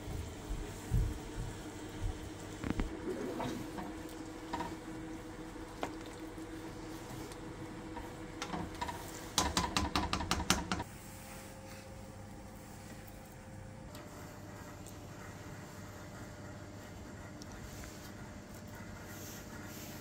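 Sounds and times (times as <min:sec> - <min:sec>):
spoon knocking on metal pot: 0:09.4 - 0:10.8.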